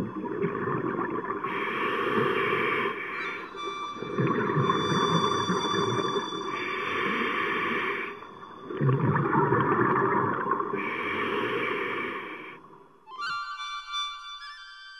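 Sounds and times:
bubbles rumbling underwater: 0.0 - 1.5, 4.0 - 6.2, 8.6 - 10.8
regulator breaths hissing: 1.5 - 3.6, 5.7 - 8.4, 10.8 - 12.6
music: 3.1 - 6.6, 13.0 - 14.9.

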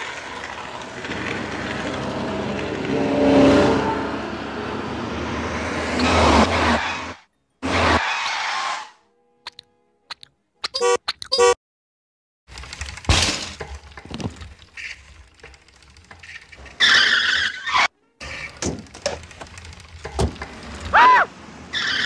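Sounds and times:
tyre screech: 6.0 - 9.0, 16.2 - 18.6, 20.7 - 22.0
toy car horn beeping: 9.1 - 11.6
knocks and thuds: 13.1 - 14.4.

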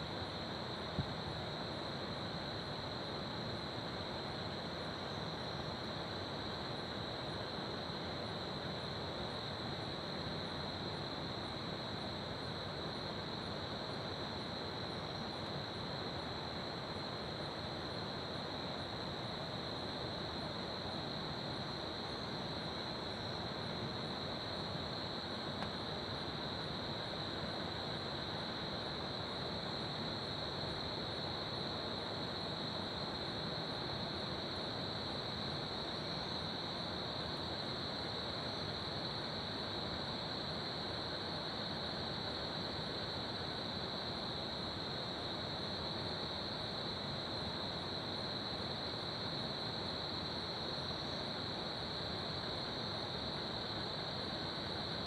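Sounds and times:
crickets chirping: 0.0 - 55.0.

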